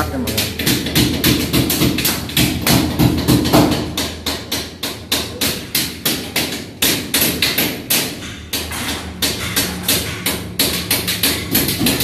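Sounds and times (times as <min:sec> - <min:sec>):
hammer striking rapidly: 0:00.0 - 0:12.0.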